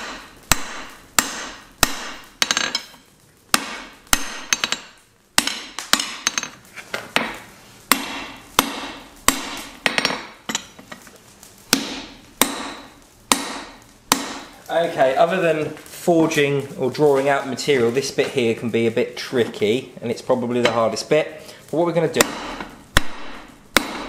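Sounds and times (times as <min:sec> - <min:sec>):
hammer striking hot metal on anvil: 0:00.0 - 0:06.6, 0:07.2 - 0:10.8, 0:11.7 - 0:14.5, 0:22.1 - 0:24.0.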